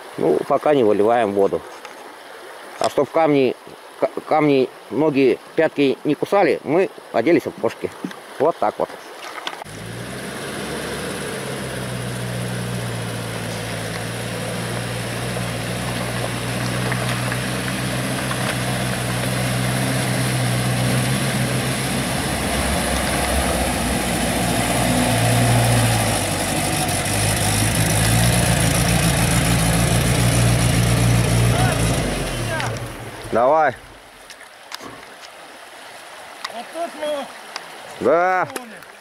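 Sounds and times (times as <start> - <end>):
water splashing around wheels: 9.2 - 39.0
off-road vehicle engine running: 9.6 - 34.0.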